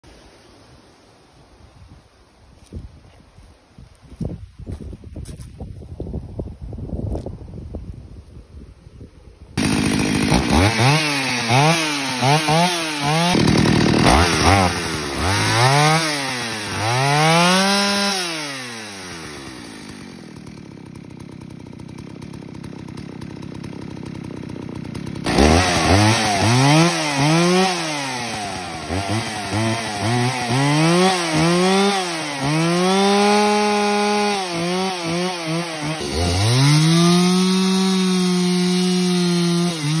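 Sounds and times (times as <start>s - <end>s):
chainsaw cutting through log: 9.6s - 40.0s
chainsaw revving: 9.6s - 40.0s.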